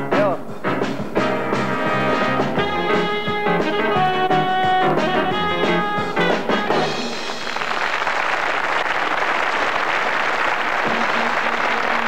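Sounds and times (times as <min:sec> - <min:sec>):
circus band with brass and drums: 0:00.0 - 0:08.3, 0:09.3 - 0:12.0
audience applauding: 0:06.8 - 0:12.0.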